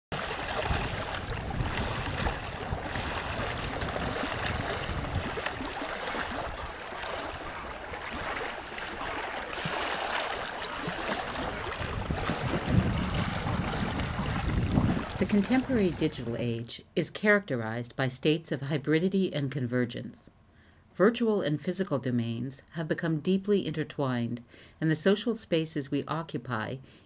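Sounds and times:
small waves on open water: 0:00.1 - 0:16.6
wind: 0:00.1 - 0:22.8.

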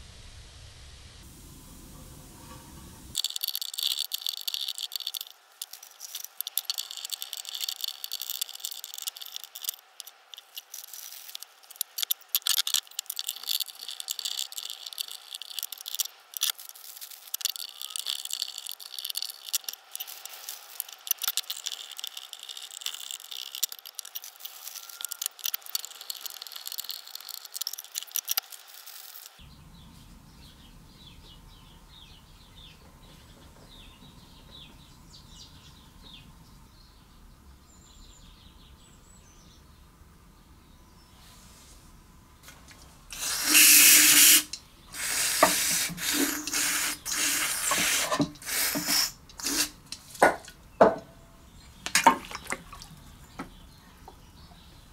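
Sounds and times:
steady low hum: 0:00.0 - 0:03.2
scratching and rattling of small parts: 0:01.9 - 0:29.4, 0:42.4 - 0:51.1
faint high chirps: 0:24.4 - 0:27.4.

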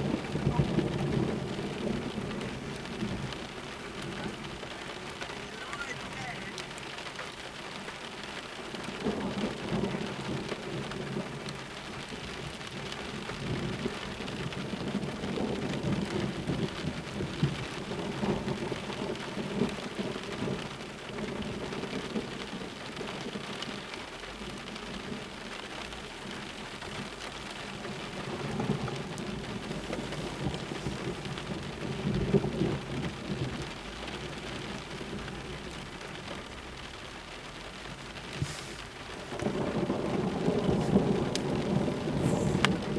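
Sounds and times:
thunder rumbling: 0:00.0 - 0:07.0, 0:08.5 - 0:42.9
steady rain falling: 0:00.0 - 0:42.9.

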